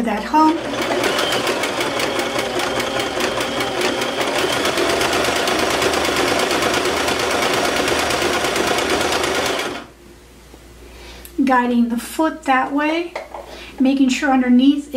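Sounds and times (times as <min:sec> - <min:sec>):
sewing machine running: 0:00.0 - 0:09.9.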